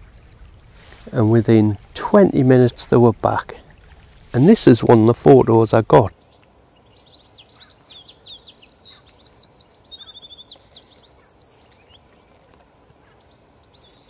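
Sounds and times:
faint steady hiss: 0.0 - 14.0
songbird singing with trill: 6.1 - 14.0.

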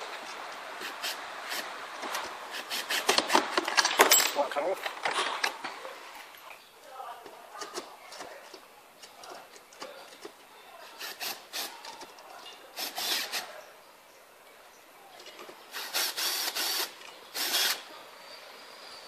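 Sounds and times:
cordless drill driving screws: 12.8 - 13.4, 15.7 - 17.9.

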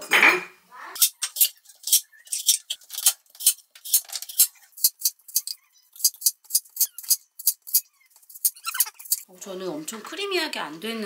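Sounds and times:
knife cutting food: 1.0 - 9.3.

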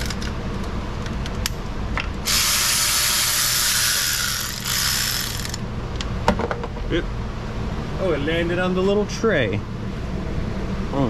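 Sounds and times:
ratchet wrench clicking: 2.2 - 5.6.

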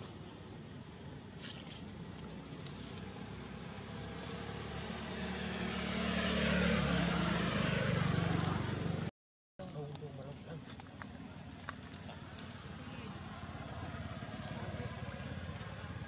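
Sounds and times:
vehicle engine running: 10.6 - 16.0.

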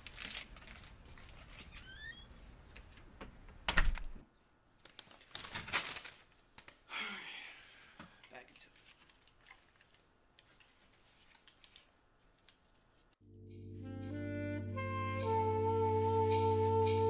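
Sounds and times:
paper bag rustling: 0.0 - 1.8, 4.8 - 6.5.

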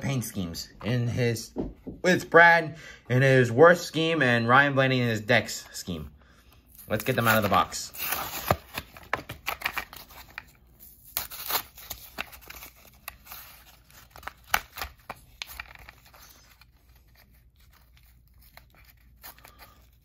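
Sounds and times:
packaging being torn open: 6.8 - 20.0.

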